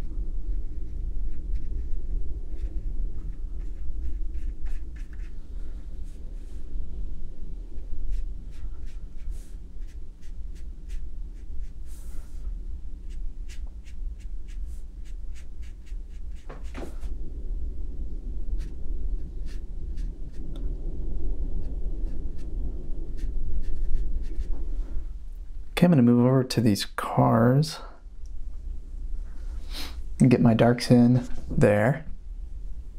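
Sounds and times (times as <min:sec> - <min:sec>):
steady low hum: 0:00.0 - 0:32.9
brush tapping and scratching paper: 0:02.6 - 0:05.4, 0:08.1 - 0:11.8, 0:13.1 - 0:17.1
brush swish: 0:08.1 - 0:12.5, 0:13.1 - 0:17.1.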